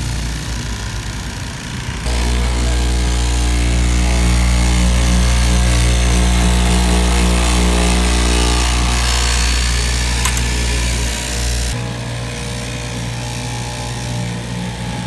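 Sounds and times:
cutting machine motor hum: 2.0s - 12.0s
sharp click: 10.2s - 10.8s.

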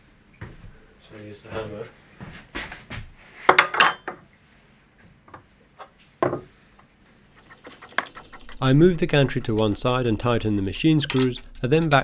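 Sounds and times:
metal scraping: 7.3s - 12.0s.

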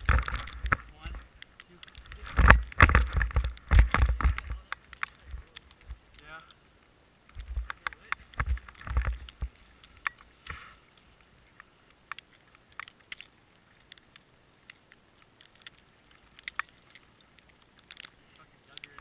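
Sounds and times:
snow and gear crunching: 0.0s - 6.7s, 7.4s - 11.8s
heavy thumps and clicks: 1.8s - 6.3s.

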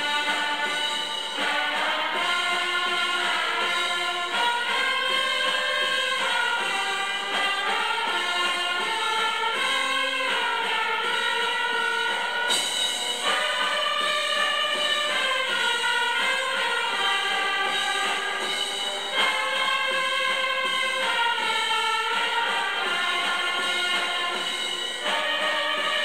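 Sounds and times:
congregation singing a hymn: 0.0s - 10.1s.

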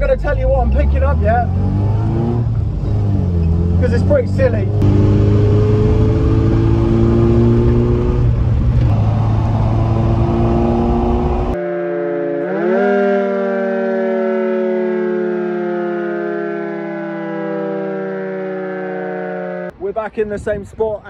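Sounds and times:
car engine and road noise: 0.0s - 16.1s
dual-tone air raid siren: 9.6s - 19.7s.

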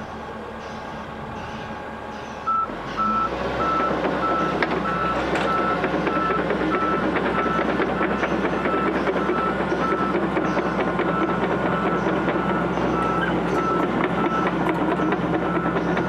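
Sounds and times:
excavator engine: 0.0s - 16.0s
travel alarm beeping: 2.4s - 10.2s, 11.0s - 16.0s.

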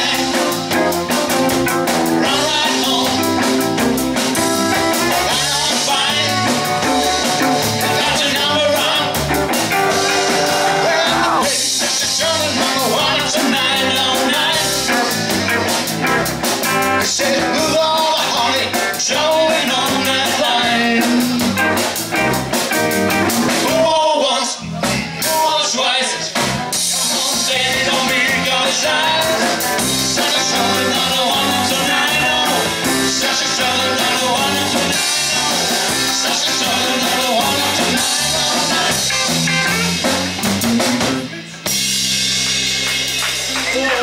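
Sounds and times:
person singing: 0.0s - 1.0s, 2.1s - 3.6s, 4.7s - 15.8s, 16.9s - 21.5s, 23.6s - 40.0s
drum kit: 0.0s - 44.0s
electric guitars: 0.0s - 44.0s.

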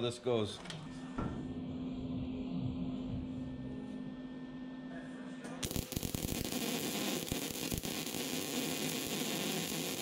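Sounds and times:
low hum: 0.9s - 10.0s
welding arc crackling and hissing: 5.6s - 10.0s.

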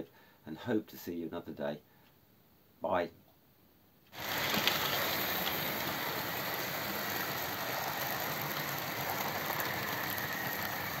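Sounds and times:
model train wheels rattling: 4.1s - 11.0s
faint motor whine: 4.2s - 11.0s.

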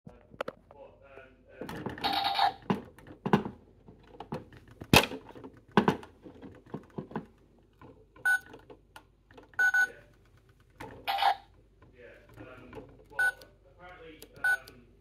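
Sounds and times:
plastic toy clacks and knocks: 1.6s - 13.3s.

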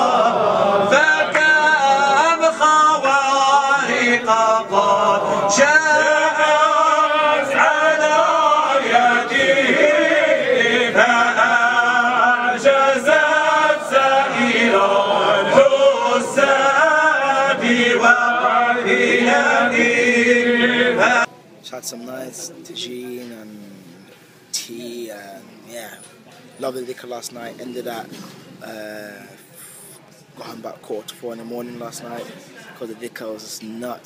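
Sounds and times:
men chanting in unison: 0.0s - 21.3s.

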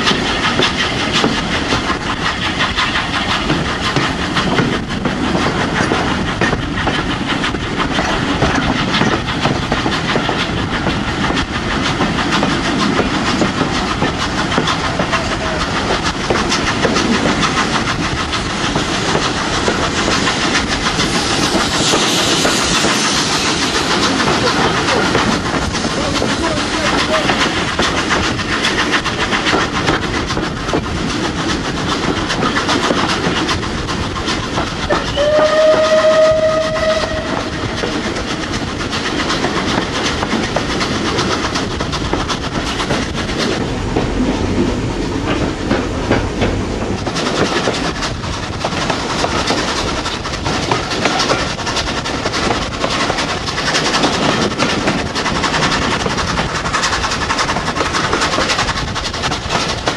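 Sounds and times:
train rumble with rail clatter: 0.0s - 59.9s
steam locomotive whistle: 34.9s - 37.7s.

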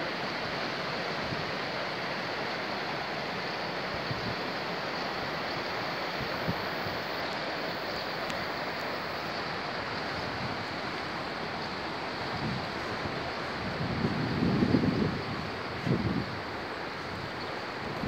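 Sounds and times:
flowing river water: 0.0s - 18.0s
wind: 0.0s - 18.0s.

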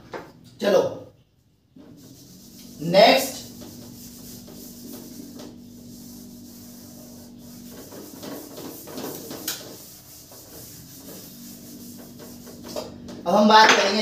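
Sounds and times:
low steady hum: 0.0s - 13.5s
handwriting strokes: 1.8s - 12.9s.

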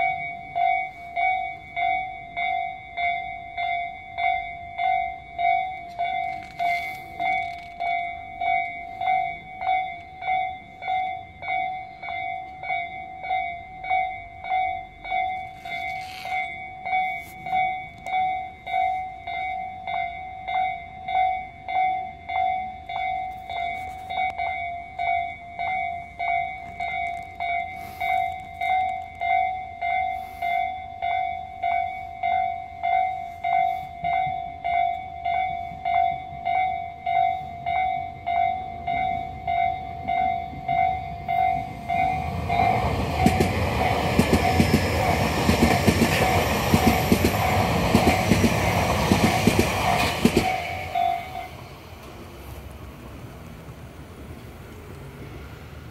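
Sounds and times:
level-crossing alarm ringing: 0.0s - 51.9s.

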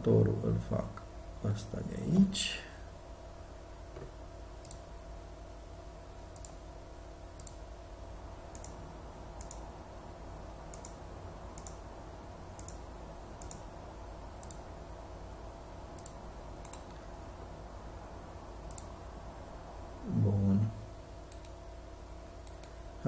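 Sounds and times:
low steady hum: 0.0s - 23.0s
computer mouse clicking: 4.0s - 4.9s, 6.3s - 6.6s, 7.3s - 7.6s, 8.5s - 8.8s, 9.4s - 9.6s, 10.7s - 11.8s, 12.6s - 12.8s, 13.4s - 13.6s, 14.4s - 14.6s, 16.0s - 17.0s, 18.6s - 18.9s, 21.3s - 21.6s, 22.4s - 22.8s.

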